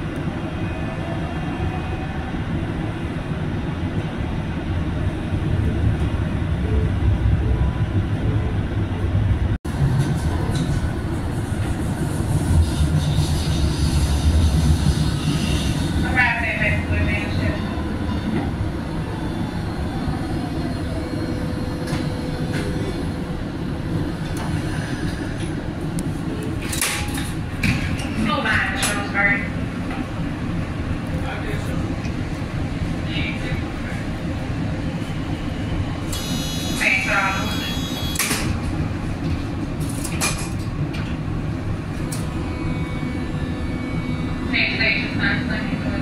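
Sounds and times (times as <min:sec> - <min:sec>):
train rumble inside car: 0:03.1 - 0:19.1, 0:20.0 - 0:46.0
faint train whine: 0:28.2 - 0:46.0.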